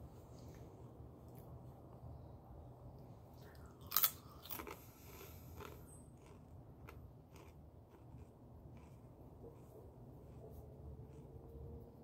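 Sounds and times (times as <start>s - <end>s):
chewing crunches: 3.5s - 10.4s.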